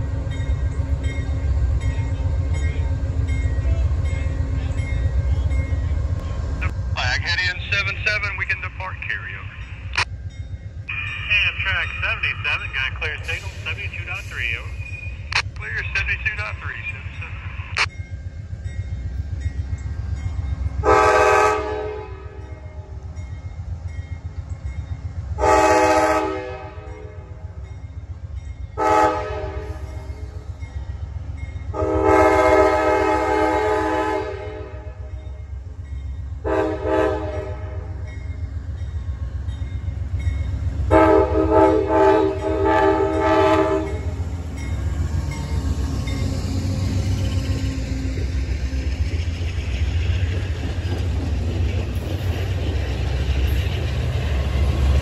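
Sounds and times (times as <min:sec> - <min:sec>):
train rumbling: 0:00.0 - 0:55.0
locomotive air horn blasts: 0:20.8 - 0:22.4, 0:25.4 - 0:27.1, 0:28.8 - 0:29.8, 0:31.7 - 0:35.0, 0:36.4 - 0:37.9, 0:40.9 - 0:44.0.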